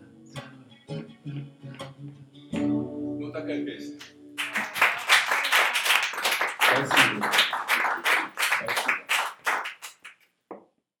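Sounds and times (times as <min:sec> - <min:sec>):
audience applauding: 0:04.4 - 0:10.2.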